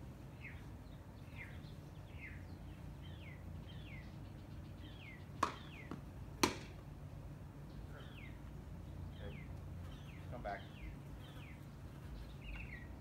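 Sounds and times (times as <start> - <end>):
bird chirping: 0.3 - 6.0, 7.6 - 13.0
ball being struck: 5.4 - 6.8.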